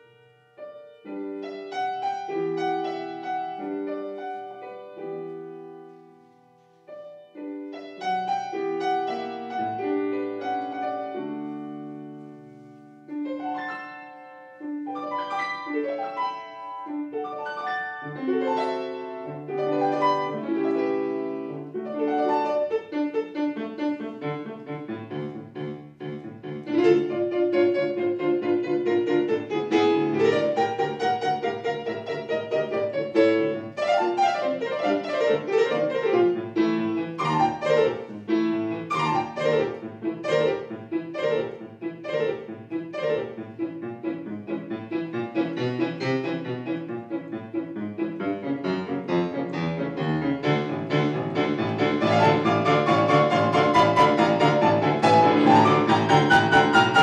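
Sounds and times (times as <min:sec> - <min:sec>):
solo classical piano: 0:00.0 - 0:57.0.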